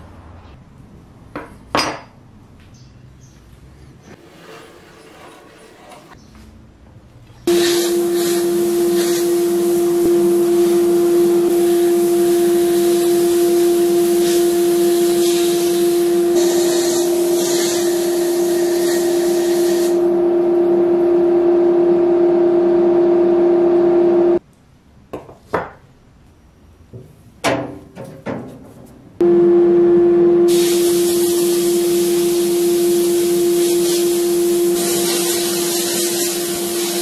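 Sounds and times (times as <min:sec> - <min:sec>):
loud steady machine hum: 0:07.5 - 0:24.4, 0:29.2 - 0:37.0
parts knocking on metal grate: 0:27.0 - 0:29.0
blast gun hissing: 0:30.5 - 0:32.2.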